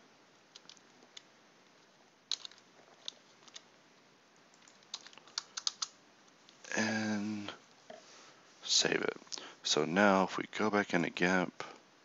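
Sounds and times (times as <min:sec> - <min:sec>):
computer keyboard keystrokes: 0:02.3 - 0:03.6, 0:04.5 - 0:05.9.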